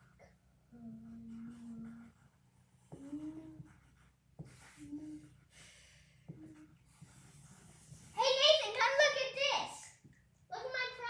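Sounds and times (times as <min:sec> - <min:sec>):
marker scratching on cardboard: 0:01.1 - 0:09.2.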